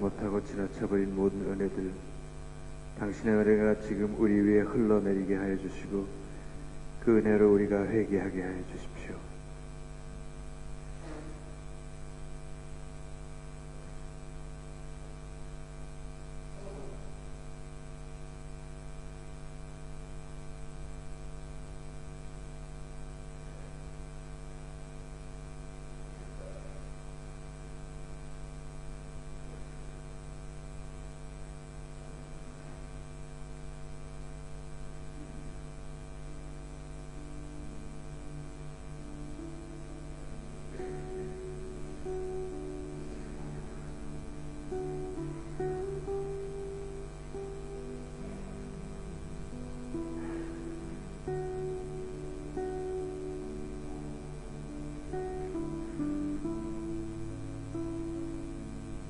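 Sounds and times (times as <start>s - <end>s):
electrical mains hum: 0.0s - 59.0s
faint notes: 37.2s - 59.0s.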